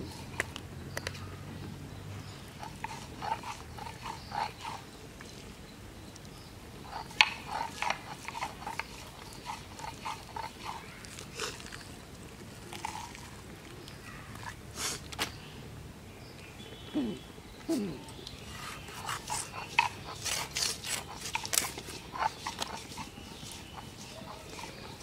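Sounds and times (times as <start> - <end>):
wet squelches of fish being cut: 2.5 - 5.4, 6.9 - 12.0, 18.4 - 25.0.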